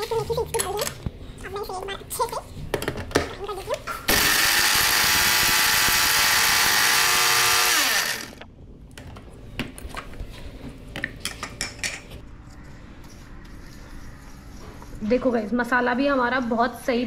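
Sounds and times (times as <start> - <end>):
mixer grinder motor whine: 4.1 - 8.5.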